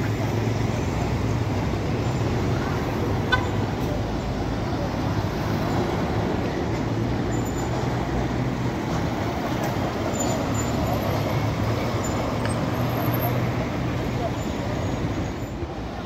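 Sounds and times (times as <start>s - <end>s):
bus diesel engine running: 0.0s - 16.0s
street traffic noise: 0.0s - 16.0s.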